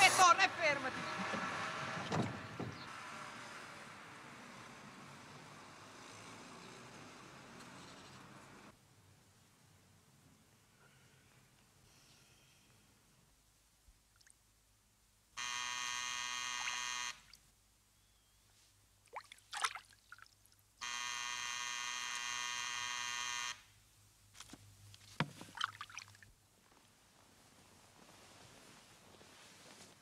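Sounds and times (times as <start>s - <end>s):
electric buzzer: 15.4s - 17.3s, 20.8s - 23.7s
water sloshing in a bath: 19.0s - 20.4s, 25.4s - 26.3s.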